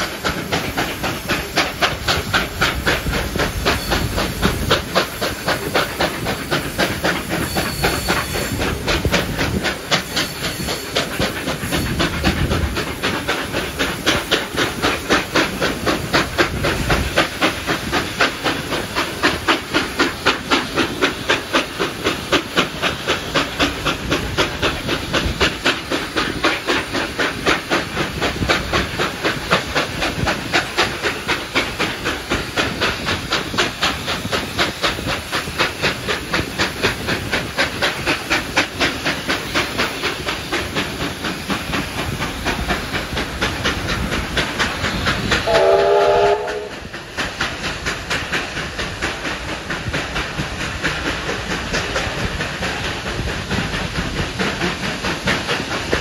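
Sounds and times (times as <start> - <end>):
rail noise from carriages: 0.0 - 56.0
steam locomotive exhaust beating: 0.0 - 56.0
steam whistle blast: 45.5 - 46.8.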